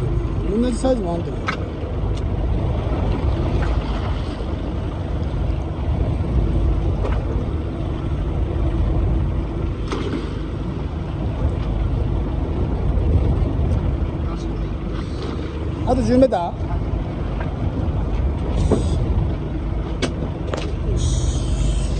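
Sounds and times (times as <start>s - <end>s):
boat engine running: 0.0s - 21.9s
sea noise: 0.0s - 21.9s
wind: 0.0s - 21.9s.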